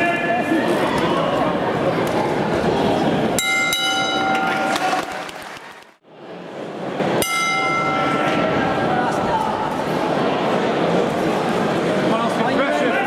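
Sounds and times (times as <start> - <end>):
crowd noise: 0.0 - 13.0
boxing ring bell ringing: 3.4 - 4.7, 7.2 - 8.6.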